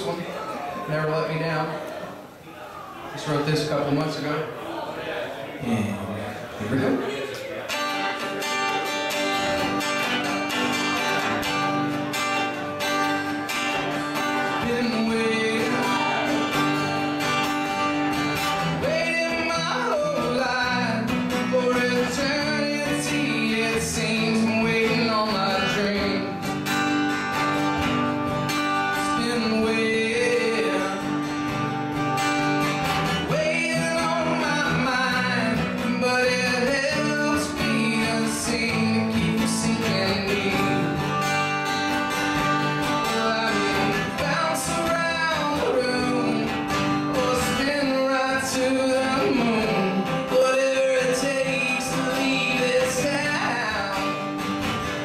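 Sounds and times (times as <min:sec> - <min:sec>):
acoustic guitars playing country: 0:00.0 - 0:55.0
man singing: 0:13.5 - 0:26.7, 0:28.7 - 0:31.6, 0:33.0 - 0:54.7.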